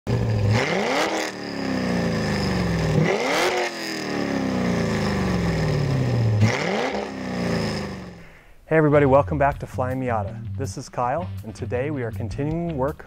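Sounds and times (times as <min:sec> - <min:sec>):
car engine revving: 0:00.1 - 0:08.3.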